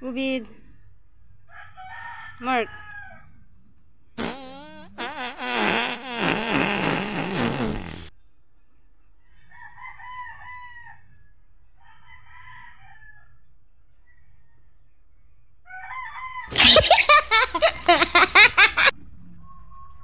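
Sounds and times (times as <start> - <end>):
roosters crowing: 1.5 - 3.4, 9.3 - 11.2, 11.8 - 13.4, 15.6 - 18.9.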